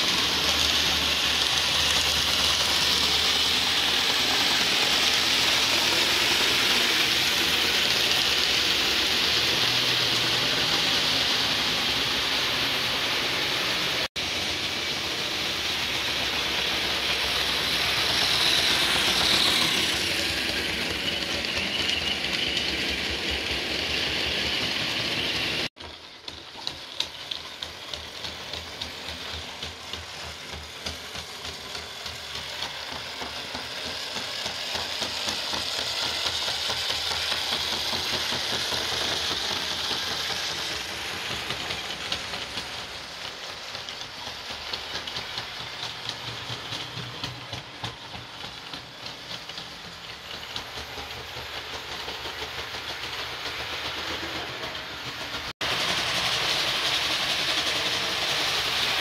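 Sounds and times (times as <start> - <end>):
model train motor whine: 0.0 - 47.9, 48.6 - 59.0
wheels clicking over rail joints: 14.7 - 59.0.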